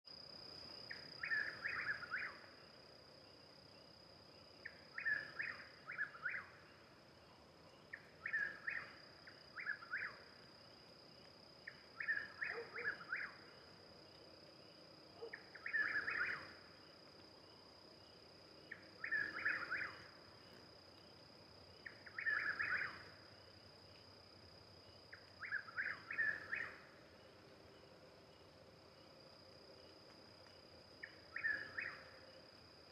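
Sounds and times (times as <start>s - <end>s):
bird whistled song: 0.9s - 2.4s, 4.6s - 6.5s, 7.9s - 10.2s, 12.0s - 13.4s, 15.2s - 16.5s, 18.7s - 20.1s, 21.8s - 23.0s, 25.4s - 26.8s, 31.0s - 32.0s.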